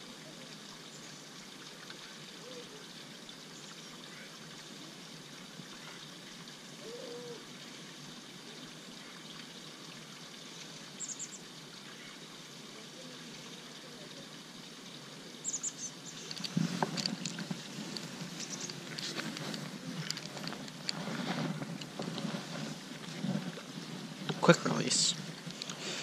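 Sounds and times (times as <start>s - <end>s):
water trickling: 0.0s - 26.0s
low bird calls: 6.8s - 7.5s, 15.4s - 16.5s, 17.9s - 19.0s.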